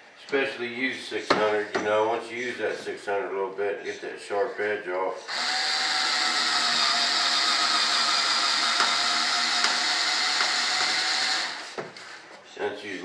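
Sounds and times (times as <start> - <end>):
electric power tool whining: 5.3 - 12.2.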